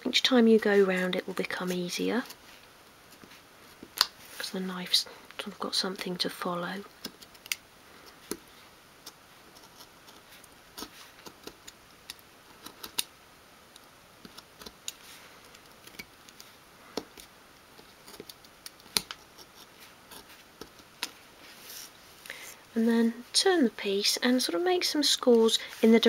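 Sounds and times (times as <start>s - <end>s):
knife scratching wood: 9.1s - 11.8s.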